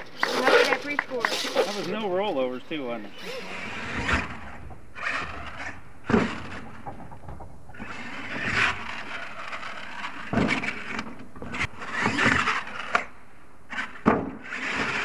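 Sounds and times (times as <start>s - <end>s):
toy truck motor and tyres hissing: 3.1s - 6.6s, 7.8s - 13.1s, 13.7s - 15.0s
toy truck landing thumps: 3.9s - 13.1s, 14.0s - 15.0s.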